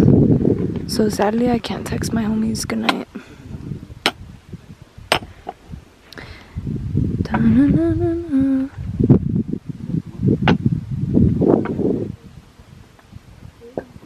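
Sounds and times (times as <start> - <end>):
woman humming: 7.3 - 8.8.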